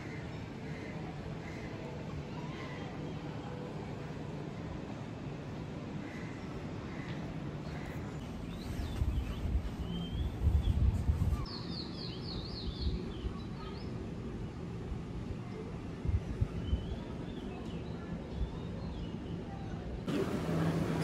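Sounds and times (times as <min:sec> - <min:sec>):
steady outdoor hum: 0:00.0 - 0:21.0
birds chirping: 0:06.1 - 0:14.0.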